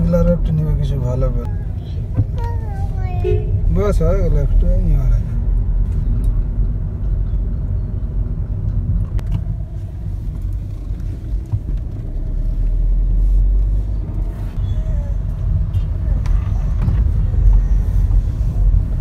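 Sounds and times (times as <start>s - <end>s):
car engine and road rumble: 0.0s - 19.0s.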